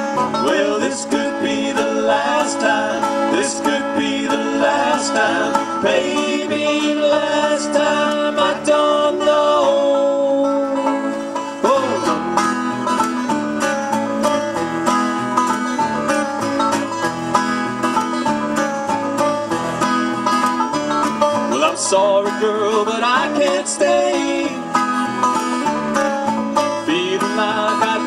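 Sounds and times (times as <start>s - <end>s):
acoustic guitar: 0.0s - 28.0s
banjo picking: 0.0s - 28.0s
upright bass: 0.0s - 28.0s.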